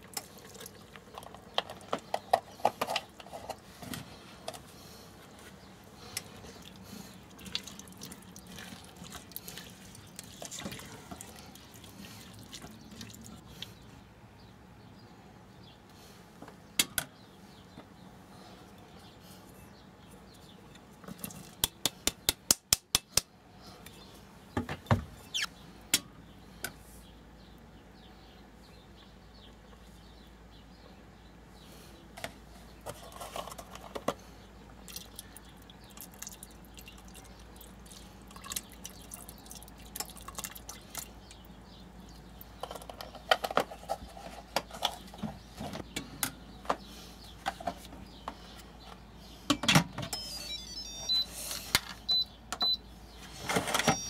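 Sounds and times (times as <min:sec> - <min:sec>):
short high beeps: 0:50.1 - 0:51.4, 0:53.8 - 0:54.0.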